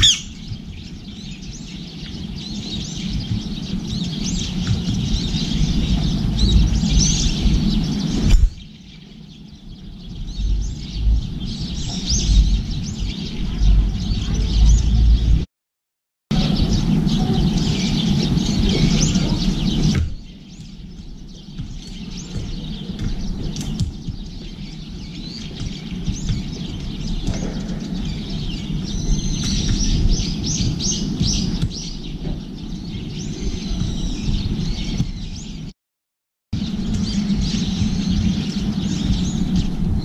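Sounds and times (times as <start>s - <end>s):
small birds chirping: 0.0s - 15.4s, 16.3s - 35.7s, 36.6s - 40.0s
low rumble: 0.0s - 15.5s, 36.6s - 40.0s.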